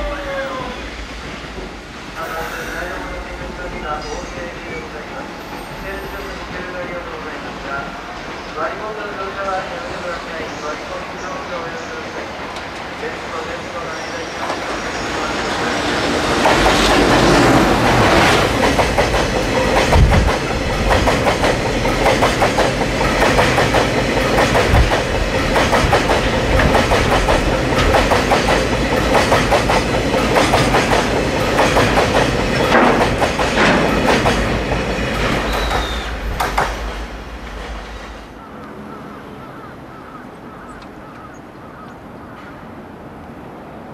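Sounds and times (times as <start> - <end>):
train wheels clattering over rail joints: 16.3 - 38.2.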